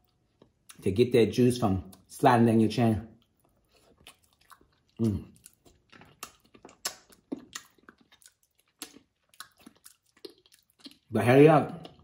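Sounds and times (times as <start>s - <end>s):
wet mouth smacks and sucking: 3.5s - 11.1s.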